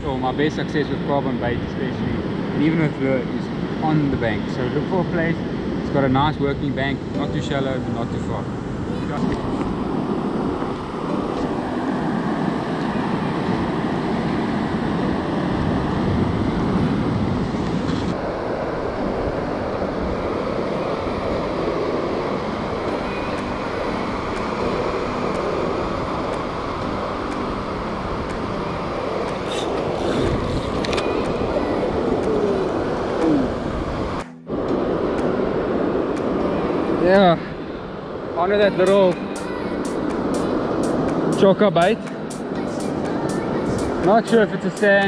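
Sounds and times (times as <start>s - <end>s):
wind buffeting microphone: 8.2s - 42.0s.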